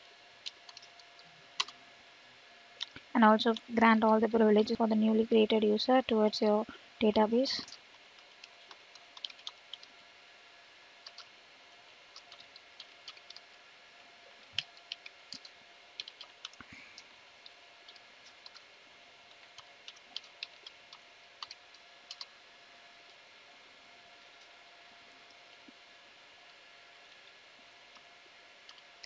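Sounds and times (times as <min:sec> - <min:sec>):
faint steady hum: 0:00.0 - 0:29.0
computer keyboard typing: 0:00.4 - 0:01.8, 0:07.6 - 0:09.9, 0:11.0 - 0:11.3, 0:12.1 - 0:13.5, 0:14.6 - 0:16.6, 0:17.4 - 0:18.6, 0:19.3 - 0:22.3.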